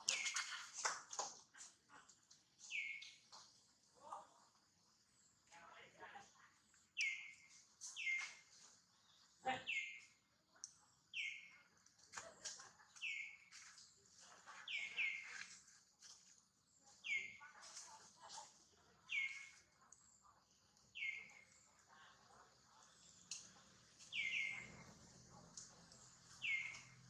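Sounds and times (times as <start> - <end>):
bird chirping: 0.0 - 0.8, 2.5 - 5.9, 6.7 - 12.0, 12.8 - 27.0
faint clicks: 22.8 - 24.2.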